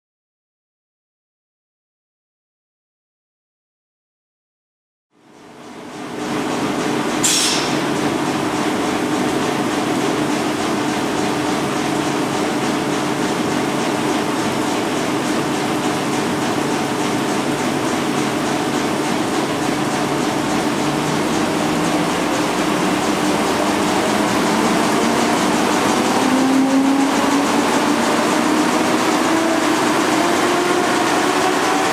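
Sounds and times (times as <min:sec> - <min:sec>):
printing press running: 0:05.3 - 0:31.9
brief hiss: 0:07.2 - 0:07.8.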